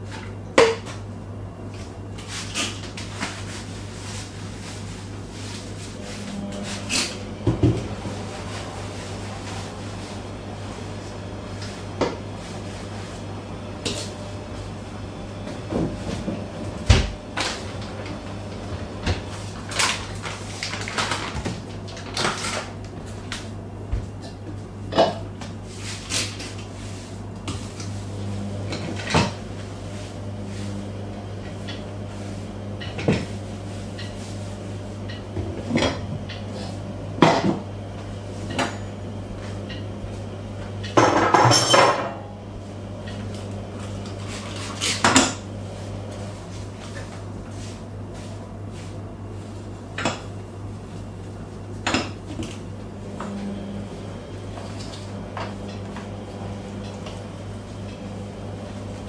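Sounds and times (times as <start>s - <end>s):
steady low hum: 0.0s - 59.0s
knocks and clinks of kitchen items: 40.8s - 42.2s.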